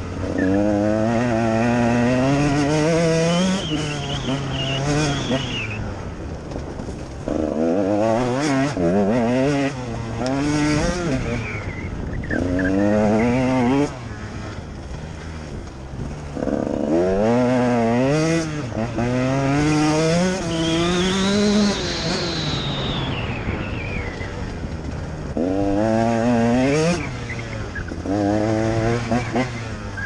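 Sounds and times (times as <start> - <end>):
motorcycle engine revving: 0.0 - 30.0.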